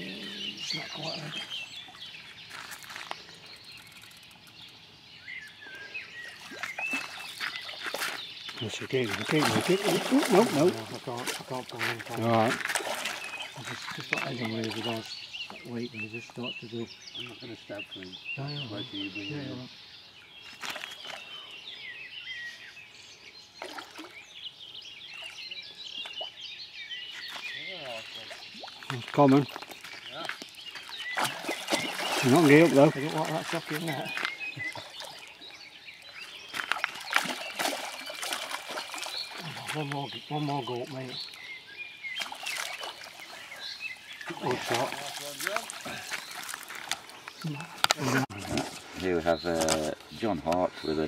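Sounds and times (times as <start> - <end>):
birds chirping: 0.0 - 51.0
fish splashing at surface: 9.1 - 13.4, 31.1 - 34.0, 36.6 - 39.7, 42.2 - 43.4.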